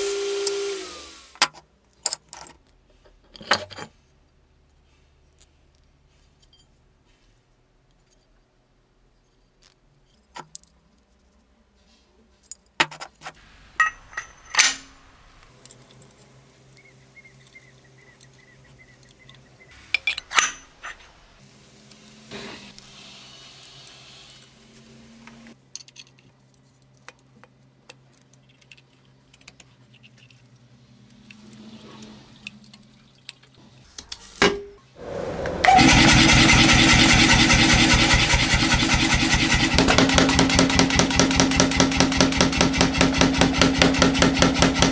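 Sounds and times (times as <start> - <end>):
steel die covers clinking: 13.8 - 15.0
power hammer pounding steel: 35.5 - 44.9.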